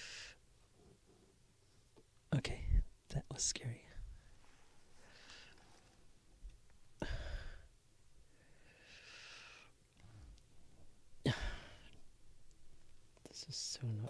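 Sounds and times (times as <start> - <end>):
man breathing and sighing: 7.0 - 7.7, 11.2 - 12.1.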